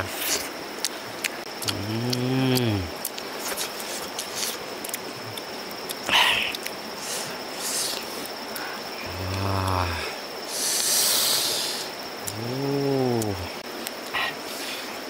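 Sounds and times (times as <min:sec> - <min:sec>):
high insect drone: 0:00.0 - 0:15.0
chewing and lip-smacking: 0:00.1 - 0:08.7
man humming with enjoyment: 0:01.6 - 0:03.0, 0:09.0 - 0:10.2, 0:12.2 - 0:13.6.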